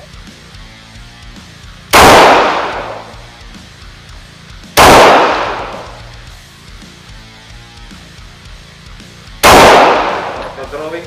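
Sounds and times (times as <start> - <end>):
pistol shots echoing: 2.0 - 3.2, 4.8 - 6.1, 9.4 - 10.7.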